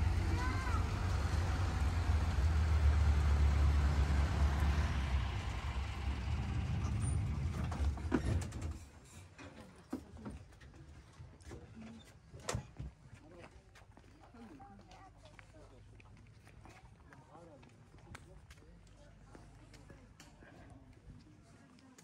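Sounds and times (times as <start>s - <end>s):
road train engine rumble: 0.0s - 9.4s.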